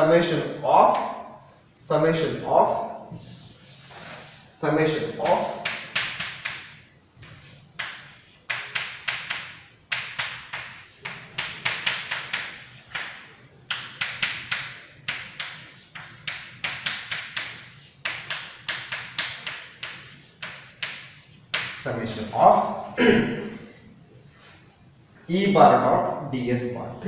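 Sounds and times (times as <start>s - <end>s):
chalk tapping and scratching: 3.1s - 4.6s, 5.2s - 21.8s.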